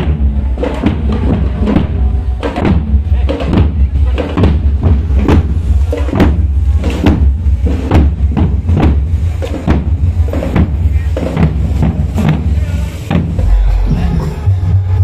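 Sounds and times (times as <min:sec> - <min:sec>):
marching bass drums: 0:00.0 - 0:15.0
low rumble: 0:11.6 - 0:15.0.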